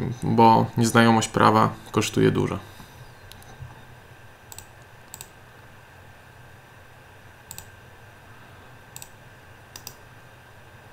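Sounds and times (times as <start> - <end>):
faint steady low hum: 0.0 - 10.9
computer mouse clicks: 4.5 - 5.4, 7.5 - 7.7, 8.9 - 10.0.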